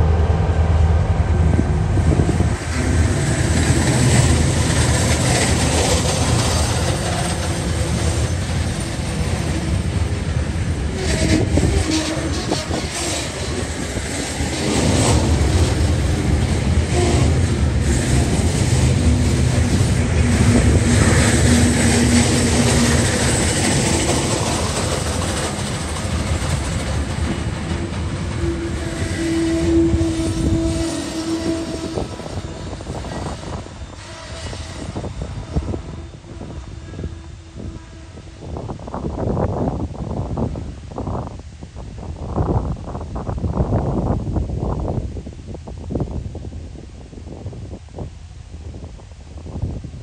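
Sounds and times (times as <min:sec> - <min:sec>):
freight train wheels rumbling on rails: 0:00.0 - 0:50.0
wheels clicking on rails: 0:02.7 - 0:10.2, 0:11.0 - 0:33.7.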